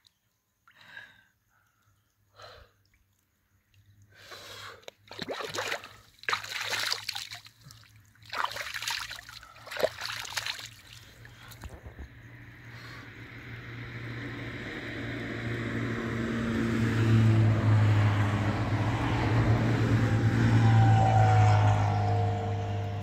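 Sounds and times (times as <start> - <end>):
water splashing and trickling: 2.8 - 11.9.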